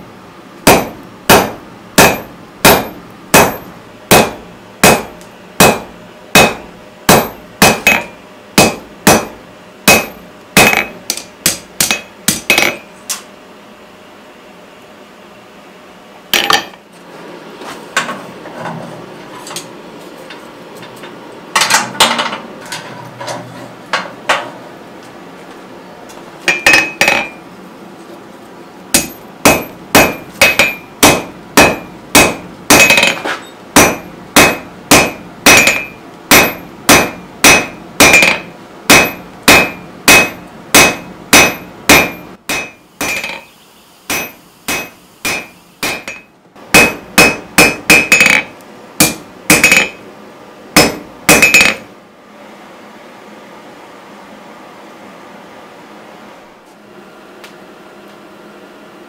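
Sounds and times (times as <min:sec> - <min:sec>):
hammer striking steel on anvil: 0:00.7 - 0:12.9, 0:16.4 - 0:16.8, 0:26.5 - 0:27.4, 0:28.9 - 0:43.5, 0:44.1 - 0:50.0, 0:50.8 - 0:51.9.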